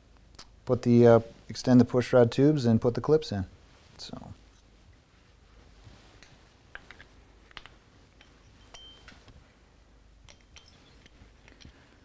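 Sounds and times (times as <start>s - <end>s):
light metallic clicks and clinks: 6.8s - 9.4s, 10.2s - 12.0s.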